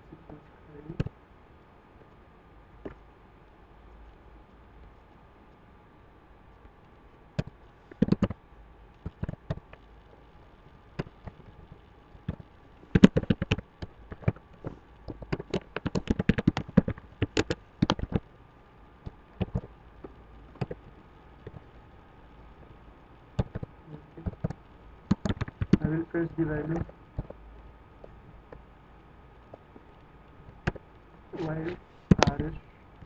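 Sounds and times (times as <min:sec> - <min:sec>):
faint steady hum: 0:00.0 - 0:33.0
computer keyboard typing: 0:07.4 - 0:08.4, 0:12.3 - 0:14.4, 0:15.0 - 0:18.2, 0:19.4 - 0:19.7, 0:20.6 - 0:20.8, 0:23.4 - 0:25.9.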